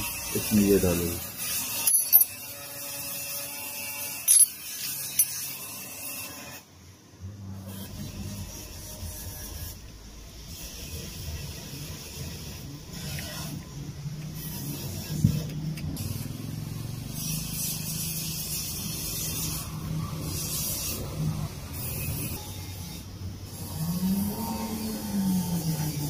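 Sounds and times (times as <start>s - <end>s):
metal parts rubbing: 0.7s - 6.2s.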